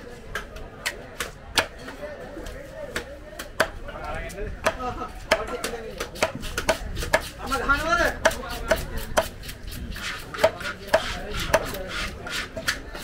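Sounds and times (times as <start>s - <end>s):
knife chopping on wooden block: 4.6s - 7.4s, 8.1s - 13.0s.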